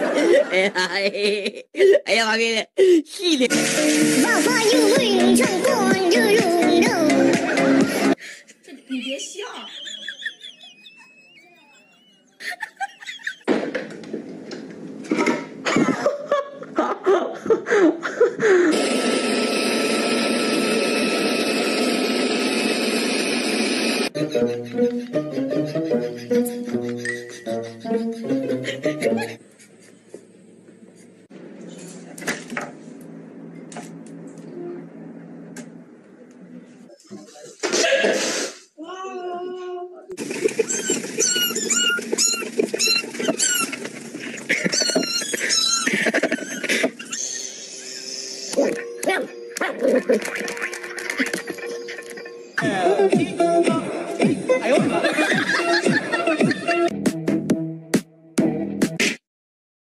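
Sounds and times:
wavering rising and falling cries: 9.2 - 13.4
leaf blower roaring: 18.7 - 24.1
small animal squeaking: 40.6 - 43.8.

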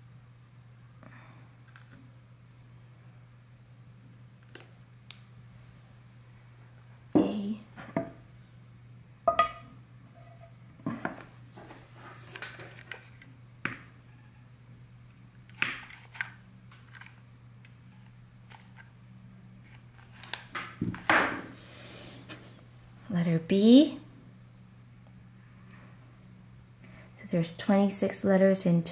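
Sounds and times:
faint steady hum: 0.0 - 28.9.

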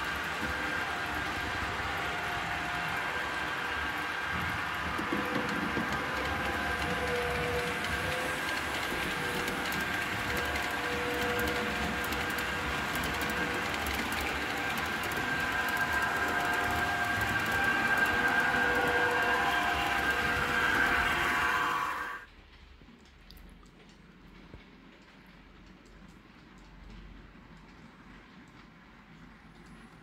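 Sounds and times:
wheels clicking over track: 0.0 - 22.0
electric motors whining: 0.0 - 22.2.

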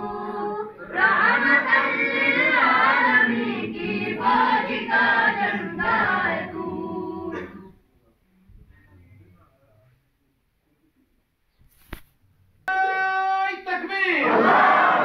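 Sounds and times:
chanting over loudspeakers: 0.0 - 7.8, 12.7 - 15.0.

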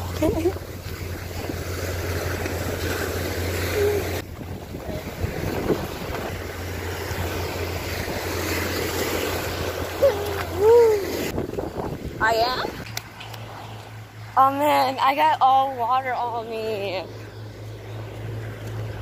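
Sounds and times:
wind on microphone: 0.0 - 13.4
waves breaking on beach: 0.0 - 14.1.

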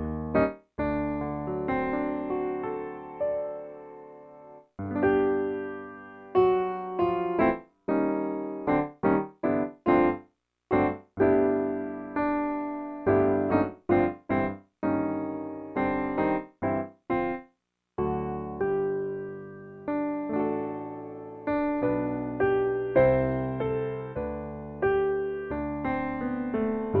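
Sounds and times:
piano playing detached chords: 0.0 - 17.4.

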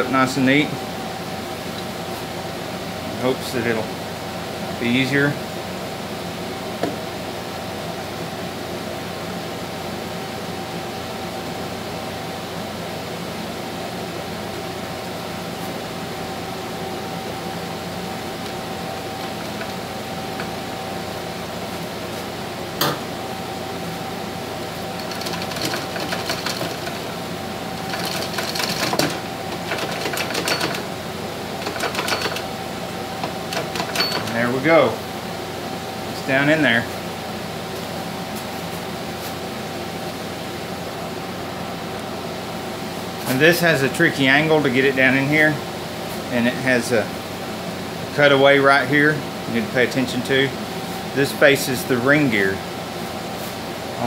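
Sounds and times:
steady background hum: 0.0 - 54.0
clutch drum clicking and rattling: 25.0 - 27.1, 27.8 - 30.9, 31.6 - 32.5, 33.2 - 34.4.

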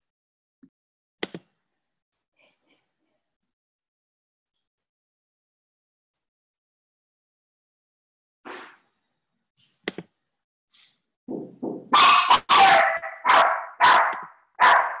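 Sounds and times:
dog barking: 11.9 - 15.0.

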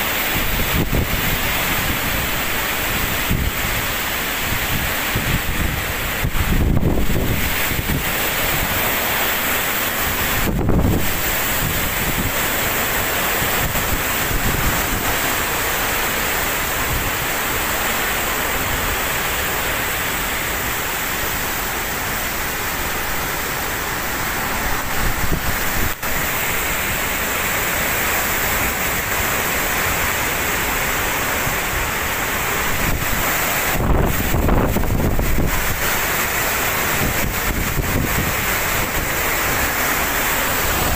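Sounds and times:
wind and rain through trees: 0.0 - 40.9
wind gusts buffeting microphone: 0.3 - 9.0, 9.7 - 15.6, 23.1 - 26.4, 32.5 - 40.9.

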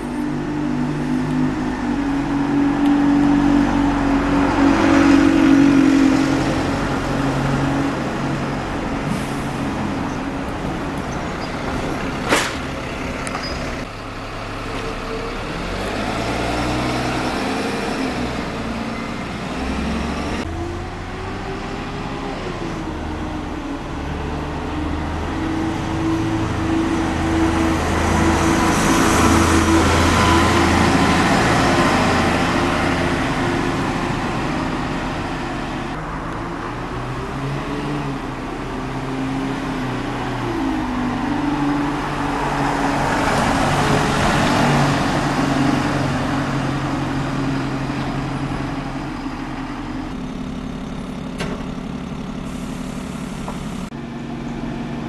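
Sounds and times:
bus engines humming: 0.0 - 55.0.

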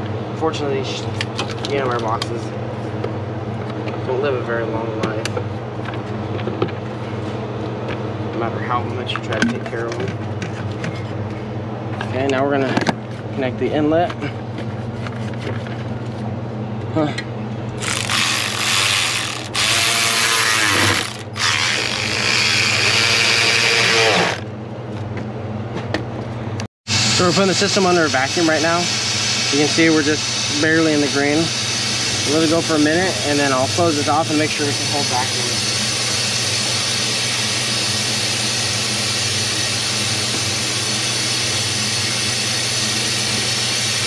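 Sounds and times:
air tool hissing with low hum: 17.0 - 24.4, 26.9 - 44.0.

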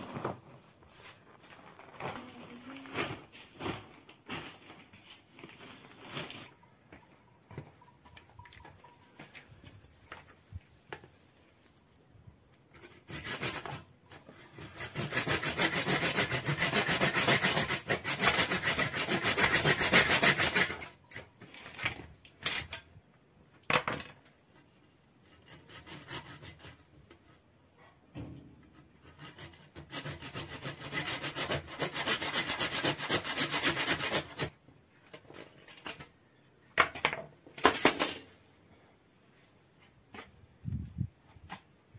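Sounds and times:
hand saw cutting horn: 12.8 - 21.0, 25.2 - 27.2, 28.8 - 34.5.

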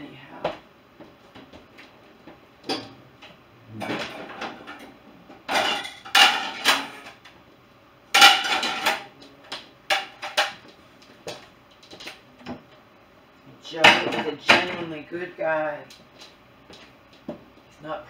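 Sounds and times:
plates clattering and clinking: 3.7 - 7.2, 8.2 - 9.1, 9.9 - 10.6
dishwasher rack rattling: 5.5 - 7.2, 8.2 - 9.1.

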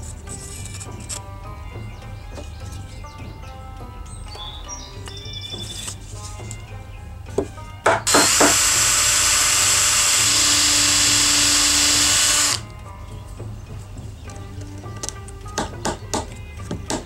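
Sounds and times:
knocks: 7.3 - 8.6, 15.1 - 17.0
power drill boring into wood: 8.0 - 12.6.

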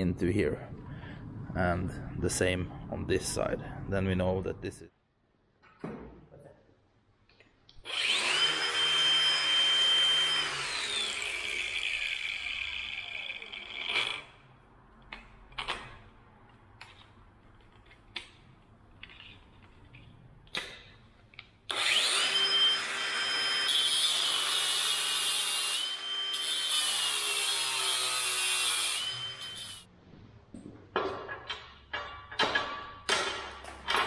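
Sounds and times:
angle grinder cutting steel: 7.9 - 14.4, 21.7 - 29.9.

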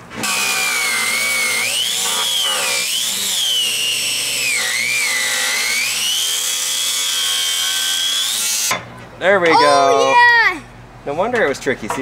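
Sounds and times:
angle grinder cutting metal: 0.2 - 8.7.

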